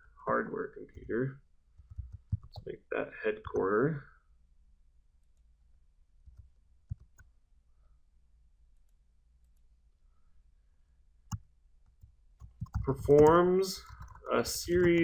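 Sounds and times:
mouse and keyboard clicks: 11.3s - 15.0s.

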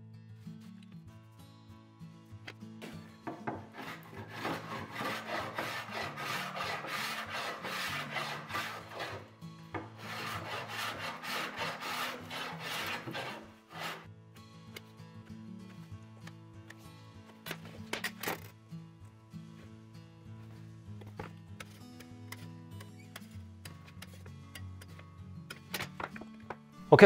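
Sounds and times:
background music: 0.0s - 27.0s
hand plane shaving wood: 3.3s - 14.1s.

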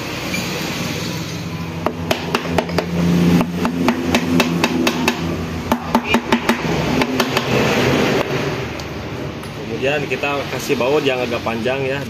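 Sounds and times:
hammer tapping on metal: 1.8s - 7.6s.

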